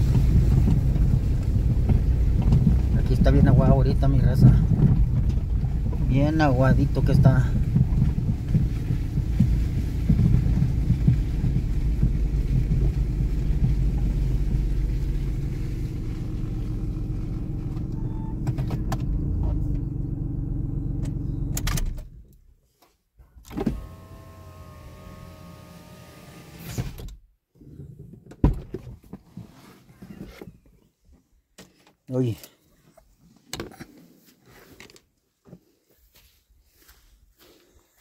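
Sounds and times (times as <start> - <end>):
car engine and tyres rumbling: 0.0 - 22.6, 23.4 - 31.2
electric window motor whining: 23.5 - 27.1.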